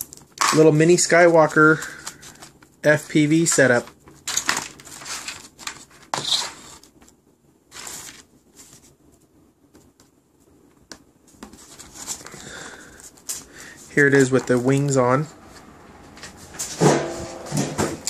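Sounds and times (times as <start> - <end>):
handling rustles and scuffs: 11.2 - 18.0.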